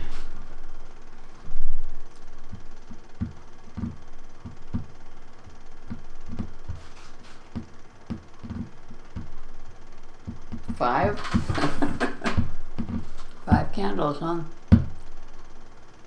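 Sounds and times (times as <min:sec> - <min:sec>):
soft low knocks and thumps: 0:02.5 - 0:05.0, 0:05.8 - 0:06.8, 0:07.5 - 0:09.4, 0:10.2 - 0:10.9.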